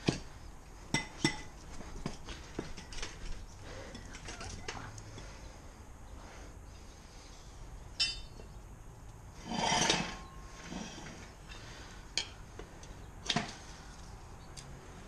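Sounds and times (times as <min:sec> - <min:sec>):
metal tire irons clinking: 0:07.9 - 0:08.6, 0:09.4 - 0:12.4
tire scraping on rim: 0:09.3 - 0:11.8.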